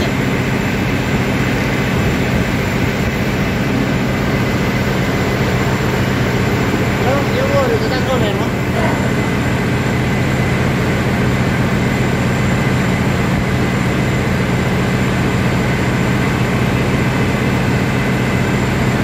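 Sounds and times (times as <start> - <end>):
heavy machinery humming: 0.0 - 19.0.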